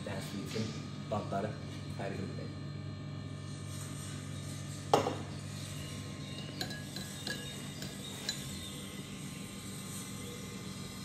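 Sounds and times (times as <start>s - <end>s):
spoon clinking on ceramic bowl: 6.3s - 8.7s.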